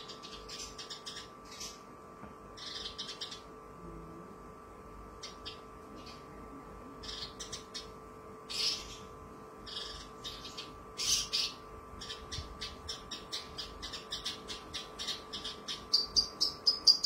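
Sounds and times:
bird chirping: 0.0s - 1.9s, 2.6s - 3.5s, 5.2s - 6.3s, 7.0s - 17.0s
faint steady hum: 0.0s - 17.0s.

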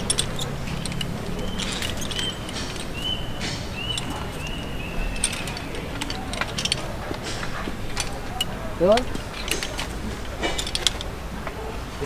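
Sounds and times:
small bird chirping: 0.0s - 5.9s
metal hardware clicking: 0.0s - 11.6s.

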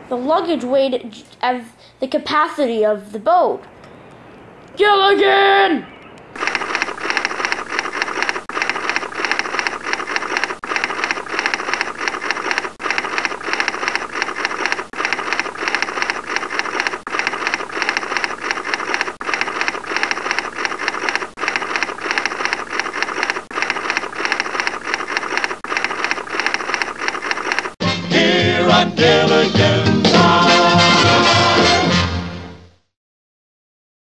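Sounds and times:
typewriter keystrokes clattering: 6.4s - 27.8s.

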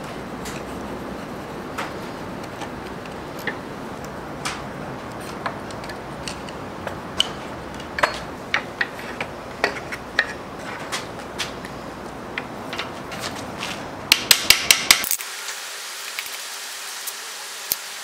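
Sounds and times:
steady background hiss: 0.0s - 18.0s
small metal clicks and taps: 1.8s - 11.8s.

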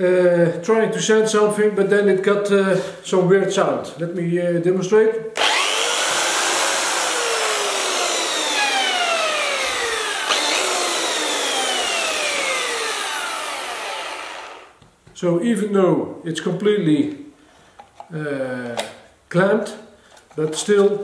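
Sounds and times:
belt sander whining: 5.4s - 14.8s.

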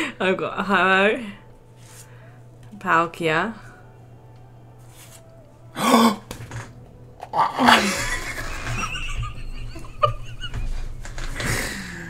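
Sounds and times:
people laughing: 7.6s - 11.4s.

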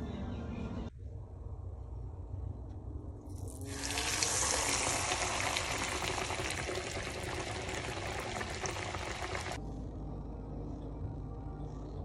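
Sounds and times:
squid sizzling in hot oil: 3.4s - 9.6s.

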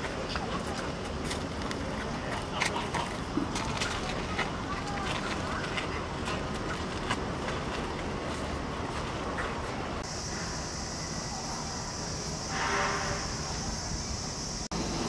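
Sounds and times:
cicadas buzzing: 10.0s - 15.0s.

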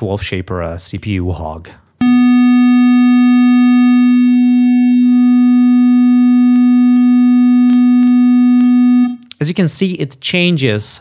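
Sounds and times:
distorted synthesized sine tone: 2.0s - 9.2s.

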